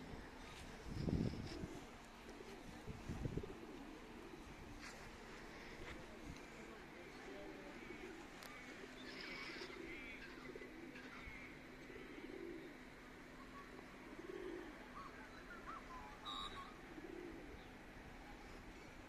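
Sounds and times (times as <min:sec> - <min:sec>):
dove cooing: 0:00.0 - 0:19.0
faint small bird chirps: 0:15.0 - 0:16.8.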